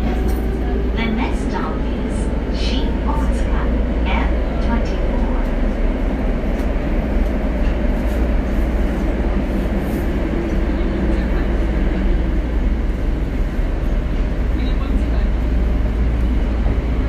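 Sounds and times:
subway car wheels rumbling: 0.0s - 17.0s.

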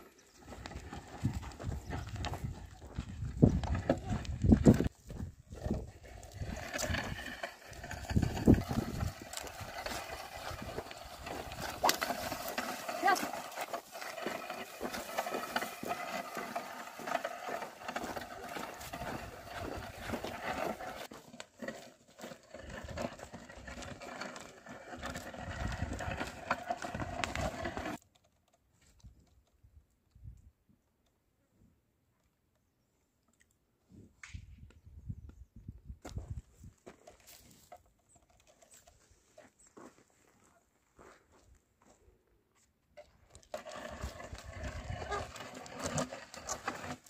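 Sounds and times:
plough scraping soil: 0.0s - 29.3s, 43.0s - 47.0s
hoof steps: 0.0s - 30.2s, 34.7s - 47.0s.

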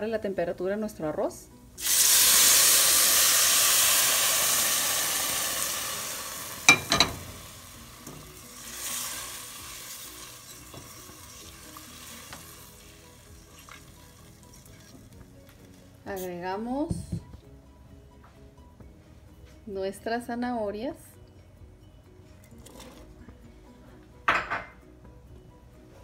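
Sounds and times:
loud sizzling hiss: 1.8s - 13.6s.

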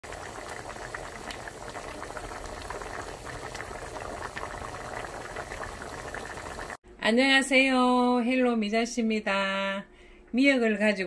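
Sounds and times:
soup bubbling and popping: 0.0s - 6.8s.

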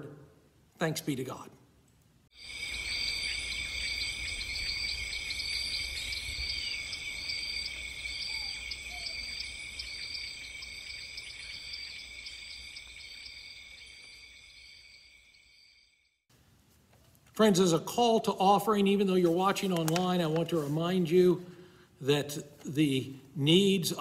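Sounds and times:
crickets trilling: 2.4s - 16.2s.

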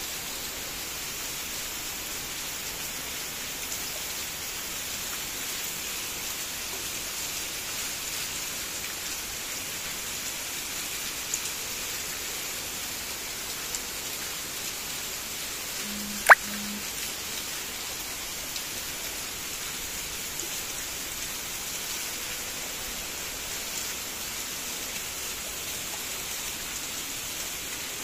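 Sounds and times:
heavy rain pouring: 8.2s - 28.0s.

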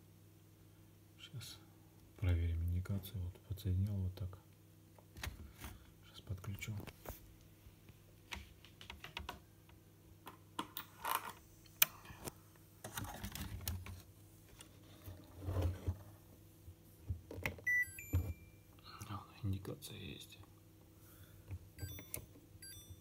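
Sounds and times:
short electronic beep: 17.7s - 18.6s.

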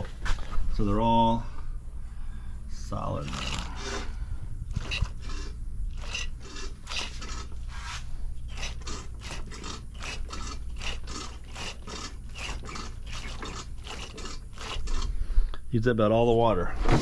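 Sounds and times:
hand pump scratchy strokes: 2.9s - 15.4s.

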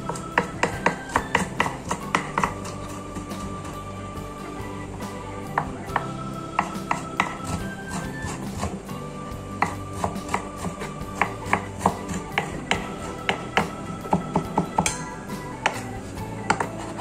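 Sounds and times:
cleaver chopping on wooden board: 0.1s - 3.0s, 9.6s - 15.0s.

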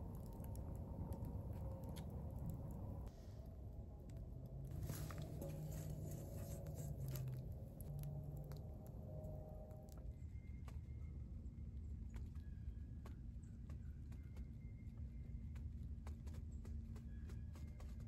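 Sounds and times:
low hum: 0.0s - 18.0s
logs poked with a stick: 4.7s - 7.5s.

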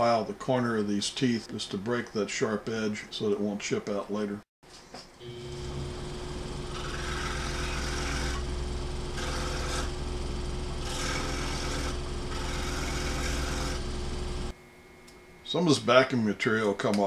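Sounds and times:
scroll saw humming: 5.2s - 14.6s
plastic rasping against saw: 10.8s - 13.8s.

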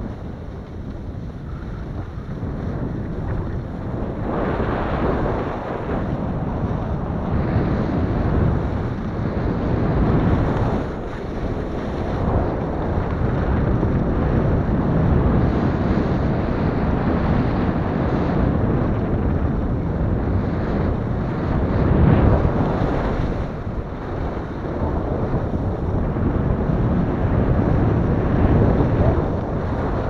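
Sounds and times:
skis scraping over crunchy snow: 0.0s - 13.9s
wind rushing over microphone: 0.0s - 30.0s.

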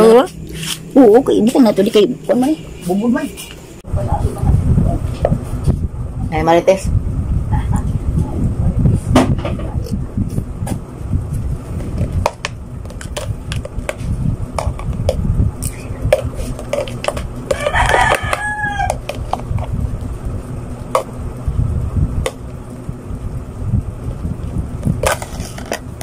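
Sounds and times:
rooster crowing: 17.4s - 19.3s.

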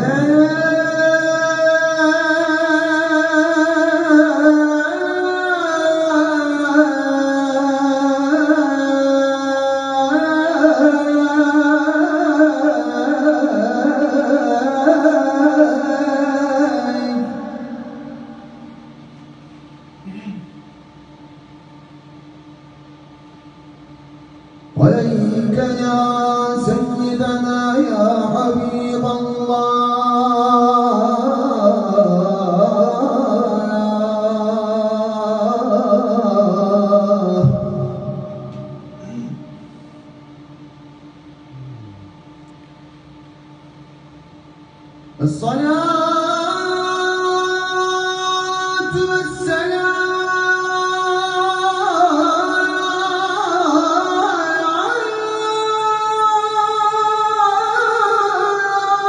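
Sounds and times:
man chanting: 0.0s - 18.9s, 24.7s - 39.8s, 41.5s - 42.3s, 45.2s - 59.0s.

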